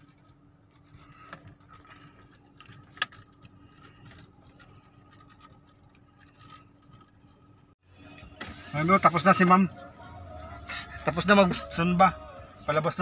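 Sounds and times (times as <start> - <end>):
faint handling noises: 0.0 - 8.5
low hum inside car cabin: 0.0 - 13.0.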